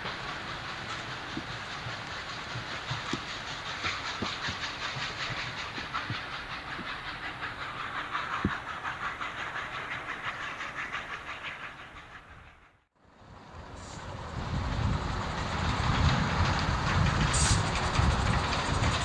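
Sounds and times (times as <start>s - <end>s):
wheels knocking on rails: 0.0s - 8.8s, 14.5s - 19.0s
steam locomotive hissing pulses: 0.0s - 19.0s.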